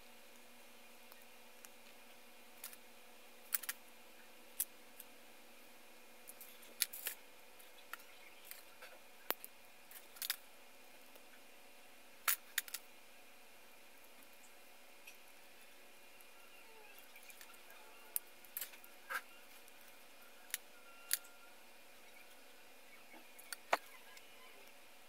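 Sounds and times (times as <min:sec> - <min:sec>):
faint steady hum: 0:00.0 - 0:25.0
sharp plastic clicks and clatter: 0:03.5 - 0:03.8.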